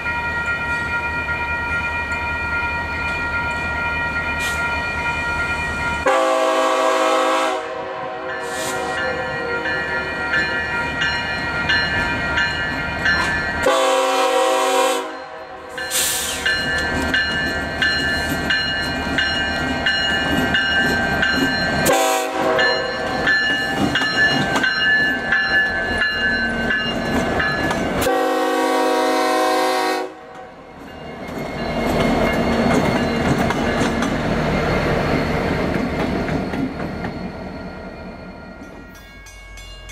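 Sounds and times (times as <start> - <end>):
locomotive engine and wheels rumbling: 0.0 - 6.2, 8.0 - 14.4, 15.3 - 39.9
locomotive air horn: 6.0 - 9.1, 13.6 - 16.2, 21.8 - 22.8, 28.0 - 30.4.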